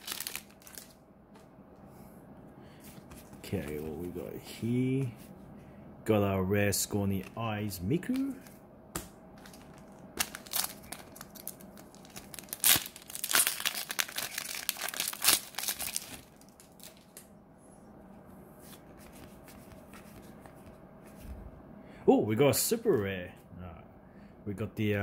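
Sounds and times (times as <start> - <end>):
plastic wrapper tearing and crinkling: 0.0 - 1.0, 9.4 - 17.2
handling of cards: 0.0 - 1.5, 8.0 - 17.3, 18.6 - 21.4.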